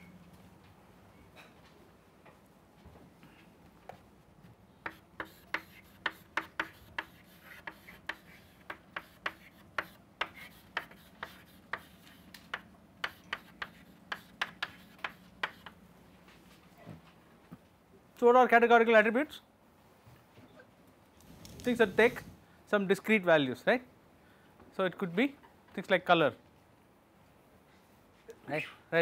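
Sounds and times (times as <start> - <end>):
chalk writing on a chalkboard: 4.8 - 15.8.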